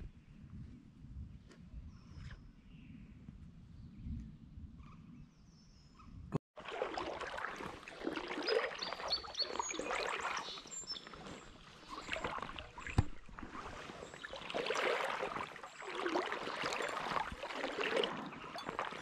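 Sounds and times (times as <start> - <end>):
water splashing and lapping: 6.5 - 19.0
bird chirps: 8.4 - 12.2.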